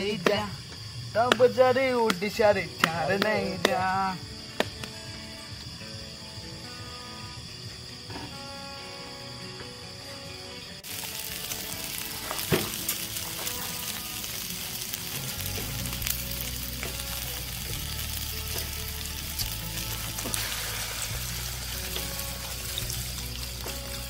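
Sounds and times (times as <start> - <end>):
food sizzling in a wok: 10.5 - 24.0.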